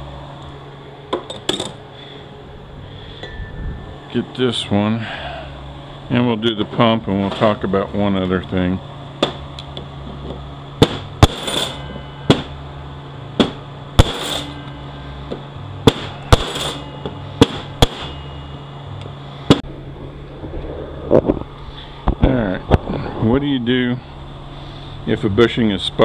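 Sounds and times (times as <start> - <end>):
hammer striking metal: 10.8 - 12.6, 13.4 - 19.6.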